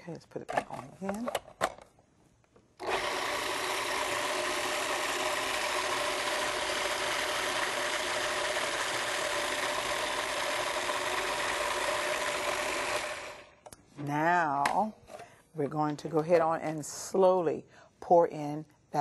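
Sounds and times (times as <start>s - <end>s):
food processor motor whirring: 2.8s - 13.6s.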